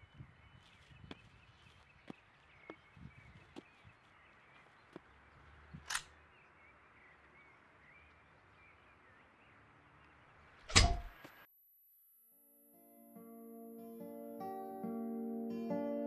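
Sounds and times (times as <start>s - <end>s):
birds chirping: 0.0s - 11.5s.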